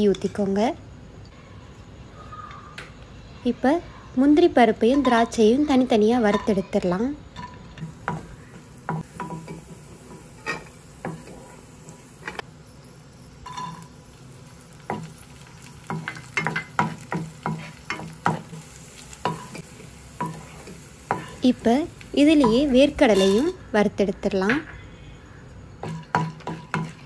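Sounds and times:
nuts sizzling in a pan: 4.8 - 27.0
wooden spatula knocking on pan: 15.8 - 18.6.

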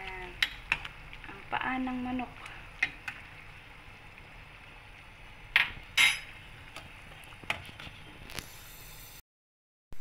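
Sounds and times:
metal clinking on a pot: 5.6 - 6.3.

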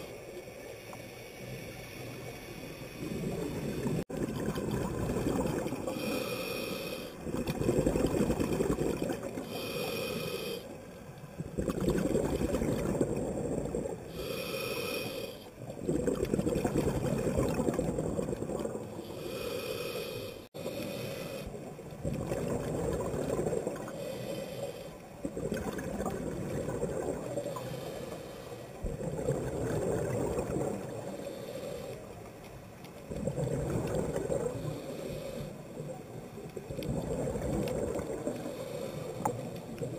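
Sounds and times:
hissing inhale through regulator: 0.0 - 4.1, 5.8 - 7.2, 9.3 - 11.0, 12.3 - 15.6, 18.9 - 21.7, 23.7 - 25.3, 27.2 - 29.1, 30.5 - 32.4, 34.1 - 36.0, 38.0 - 39.9
bubbling exhale: 11.5 - 32.0.

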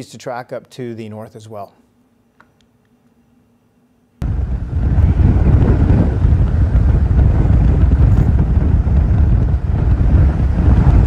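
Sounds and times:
wind buffeting microphone: 4.2 - 11.0.

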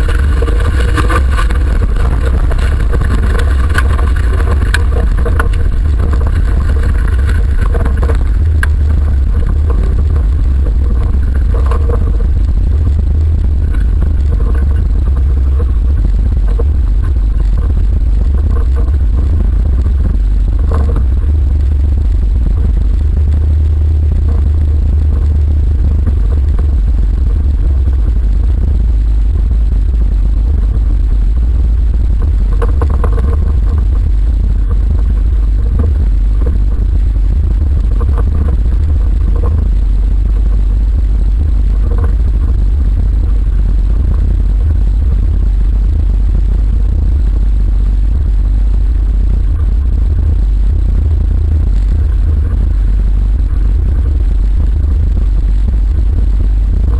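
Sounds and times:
car body rattles: 0.0 - 28.7
low rumble of engine and road: 0.0 - 56.9.

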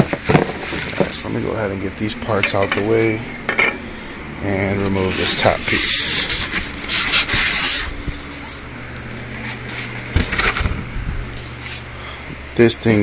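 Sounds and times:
foam scraping against cardboard box: 5.0 - 8.6.

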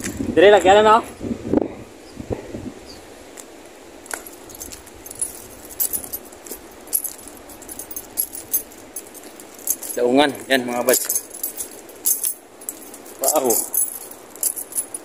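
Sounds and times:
faint steady hiss: 0.0 - 15.0
small metal objects jingling: 4.1 - 15.0.

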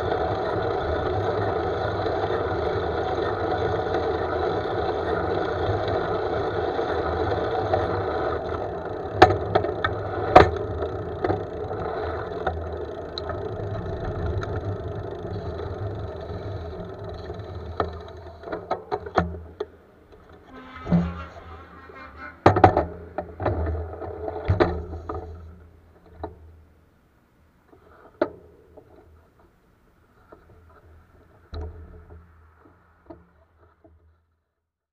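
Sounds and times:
road noise: 0.0 - 26.1
bike clicks and knocks: 7.6 - 20.4, 22.7 - 25.4.

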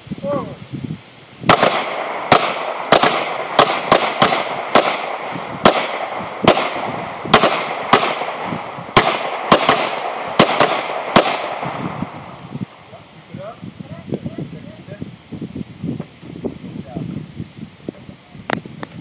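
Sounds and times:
pistol shots: 1.5 - 11.9.

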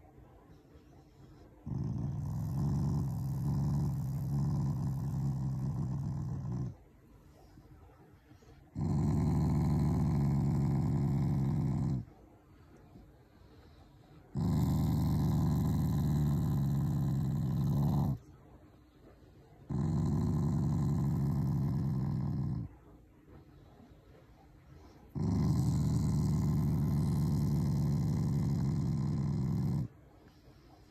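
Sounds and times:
dog growling low: 1.4 - 6.8, 8.7 - 12.1, 14.1 - 18.3, 19.6 - 22.8, 25.0 - 30.0.

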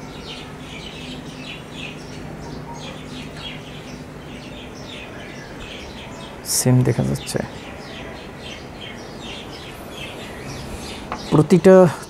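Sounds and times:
faint steady hum: 0.0 - 12.0
small birds chirping: 0.0 - 12.0.

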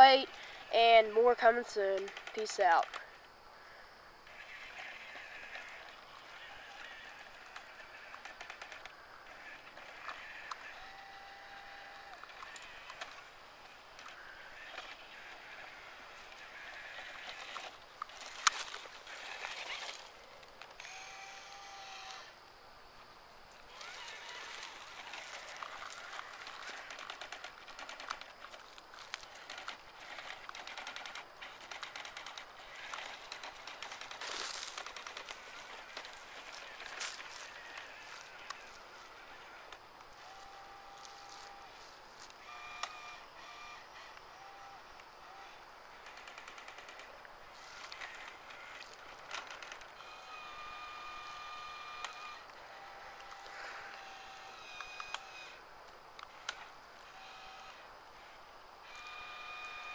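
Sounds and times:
toy electric motors and gears: 0.0 - 3.2, 4.3 - 22.4, 23.6 - 55.6, 56.2 - 59.9
steady motor whine: 6.8 - 13.3, 16.8 - 22.4, 23.6 - 46.9, 47.7 - 55.6, 56.2 - 59.9
toy motor clicking rattle: 23.7 - 38.7.

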